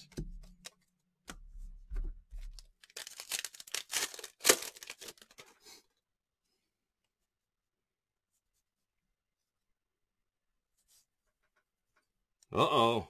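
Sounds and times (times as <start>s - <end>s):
wrapper tearing and crinkling: 2.8s - 5.5s
sharp wrapper snap: 3.0s - 5.3s.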